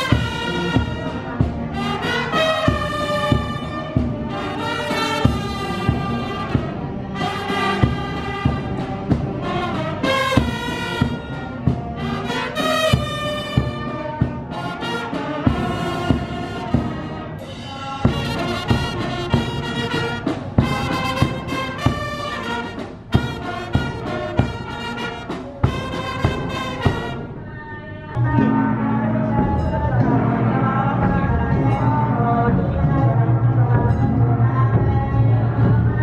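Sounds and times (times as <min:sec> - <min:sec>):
steady drum beat: 0:00.0 - 0:27.4
brass band playing: 0:00.0 - 0:36.0.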